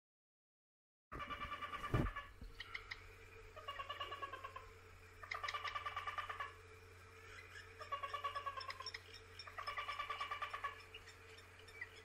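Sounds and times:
duck calling with rapid ticking notes: 0:03.6 - 0:06.6, 0:07.5 - 0:12.0.

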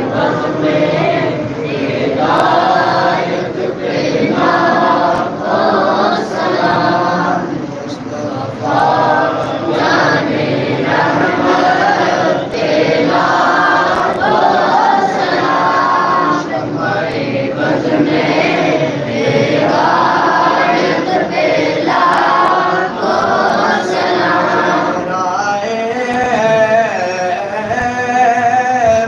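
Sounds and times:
group of men chanting: 0:00.0 - 0:26.8
man singing: 0:25.0 - 0:29.0.

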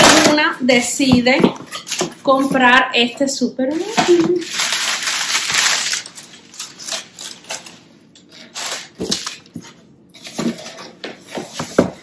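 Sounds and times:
paper crinkling: 0:03.7 - 0:11.7.

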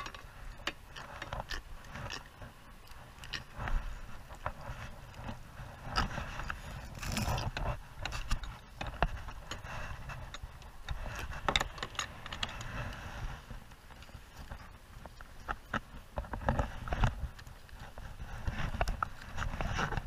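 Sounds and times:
steady low rumble: 0:00.0 - 0:20.0
fishing tackle clicks and knocks: 0:10.2 - 0:12.8.

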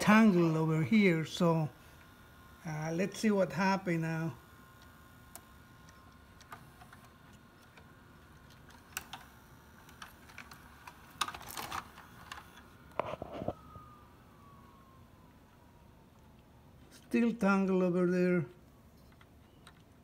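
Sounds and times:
motor whine: 0:00.0 - 0:20.0
mechanical clicks and clunks: 0:04.7 - 0:13.6, 0:18.9 - 0:20.0.

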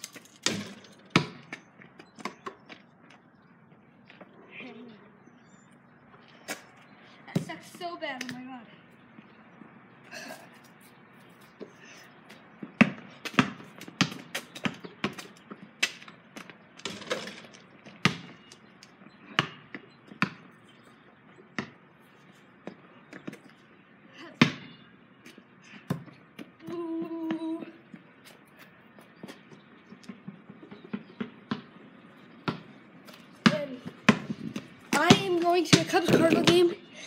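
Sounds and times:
basketball bouncing on pavement: 0:00.0 - 0:03.2, 0:07.3 - 0:08.5, 0:11.5 - 0:21.9, 0:22.6 - 0:23.6, 0:24.4 - 0:36.9.

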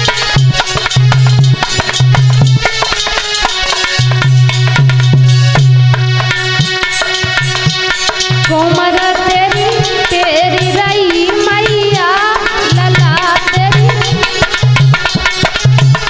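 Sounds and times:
tabla rhythm: 0:00.0 - 0:16.0
woman singing: 0:08.4 - 0:14.6.

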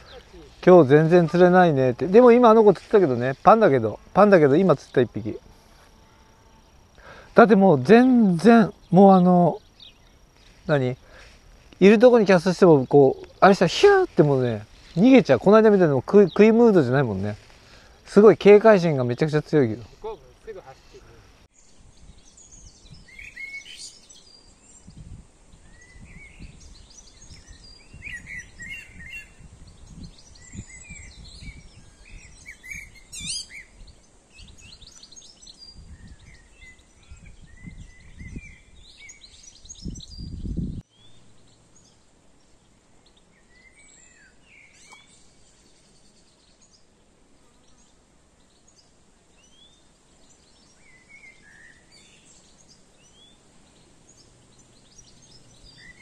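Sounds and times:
small birds chirping: 0:00.0 - 0:56.0.

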